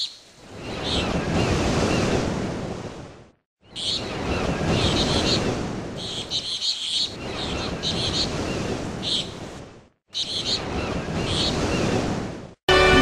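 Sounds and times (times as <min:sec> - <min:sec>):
birds chirping: 0:00.0 - 0:02.1, 0:03.6 - 0:09.5, 0:10.1 - 0:12.0
wind buffeting the microphone: 0:00.4 - 0:12.6.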